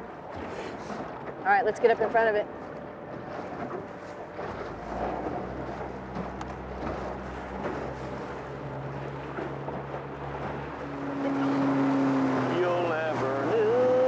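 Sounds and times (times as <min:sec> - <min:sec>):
outboard motor humming: 0:00.0 - 0:14.0
water rushing: 0:00.0 - 0:14.0.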